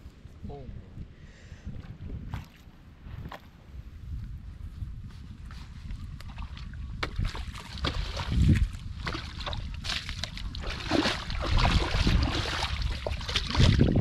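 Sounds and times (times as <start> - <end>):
wind rumble on microphone: 0.0 - 14.0
shallow water splashing: 6.2 - 14.0.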